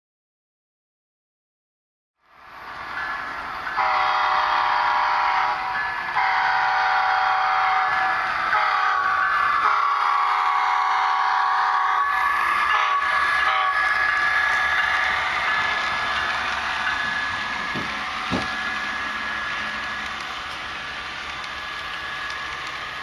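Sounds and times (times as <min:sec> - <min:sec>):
model train wheels hissing: 0:02.5 - 0:23.0
horn-like tone: 0:03.8 - 0:14.0.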